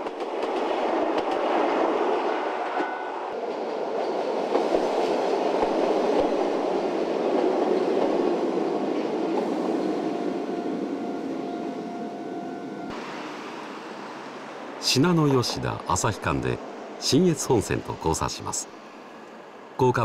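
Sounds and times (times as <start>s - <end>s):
train wheels rumbling on track: 0.0s - 20.0s.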